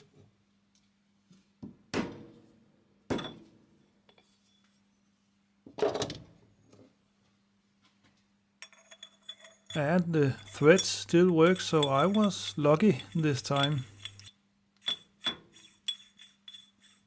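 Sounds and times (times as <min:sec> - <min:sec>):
metal knocks and clinks: 0:08.6 - 0:17.0.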